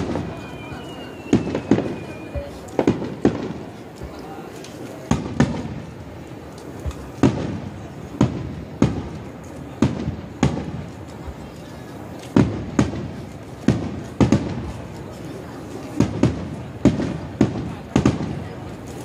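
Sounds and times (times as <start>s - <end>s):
rolling echo: 0.0s - 11.3s.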